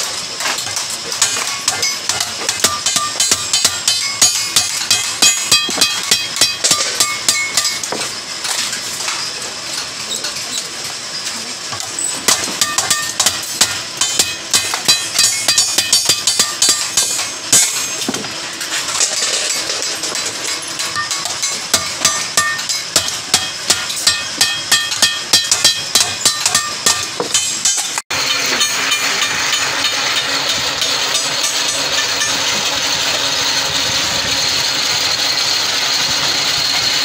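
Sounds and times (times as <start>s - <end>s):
hammer striking metal sheet: 0.6s - 8.1s, 12.2s - 32.7s.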